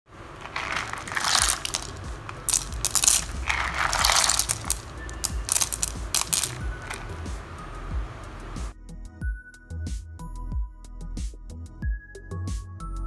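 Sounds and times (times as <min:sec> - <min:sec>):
clam shells clattering in bowl: 0:00.2 - 0:07.2.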